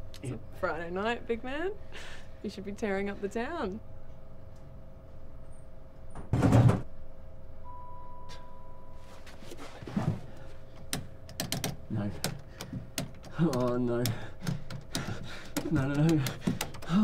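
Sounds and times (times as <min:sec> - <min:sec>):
steady electronic beep: 0:07.6 - 0:09.0.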